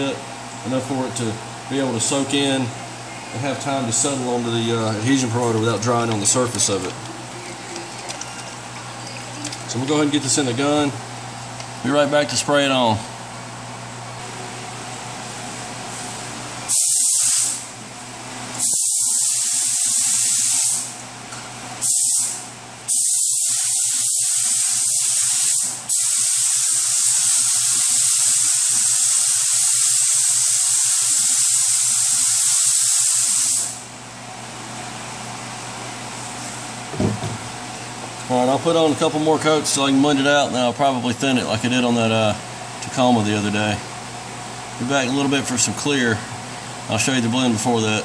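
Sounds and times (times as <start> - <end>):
paint spray gun hissing: 16.7 - 17.7, 18.6 - 20.9, 21.8 - 33.8.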